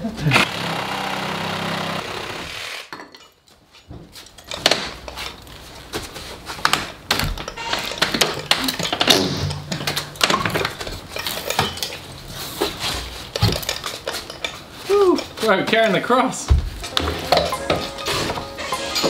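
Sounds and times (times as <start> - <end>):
power saw cutting wood: 0.3 - 2.9
wooden knocks and clatters: 3.8 - 15.8.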